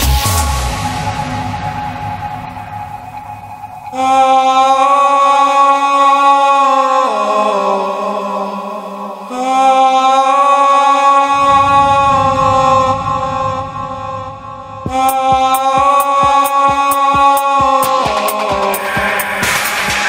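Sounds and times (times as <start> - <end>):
held chant-like vocal notes: 0.5 - 20.0
house music beat and bass: 14.8 - 20.0.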